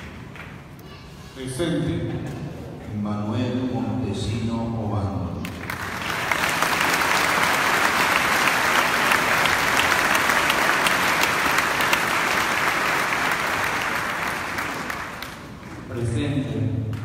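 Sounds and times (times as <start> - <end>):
crowd applauding: 5.4 - 16.1.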